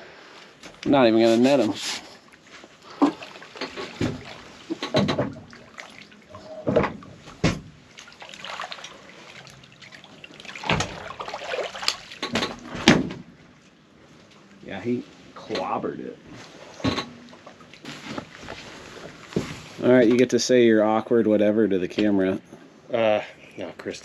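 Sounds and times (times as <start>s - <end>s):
fish thrashing and splashing water: 2.8s - 6.3s, 7.2s - 13.0s.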